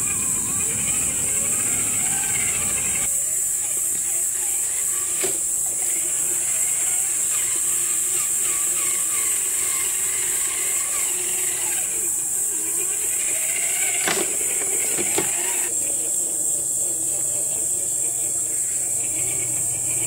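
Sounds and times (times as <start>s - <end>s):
electric motor and gears whining: 0.0s - 20.0s
high-pitched hiss: 0.0s - 20.0s
sharp knocks: 14.0s - 15.4s.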